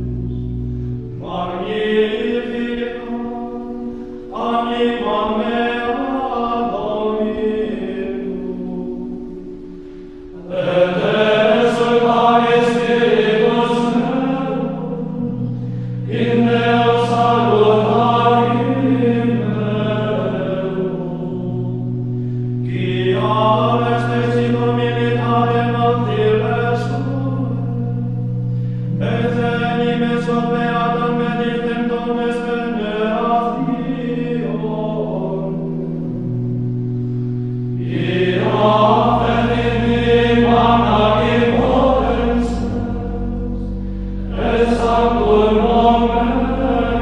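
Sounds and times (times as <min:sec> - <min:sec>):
held low note: 0:00.0 - 0:47.0
choir of men chanting: 0:01.2 - 0:03.4, 0:10.4 - 0:15.3, 0:16.0 - 0:21.5, 0:22.7 - 0:27.5, 0:37.8 - 0:43.7, 0:44.3 - 0:47.0.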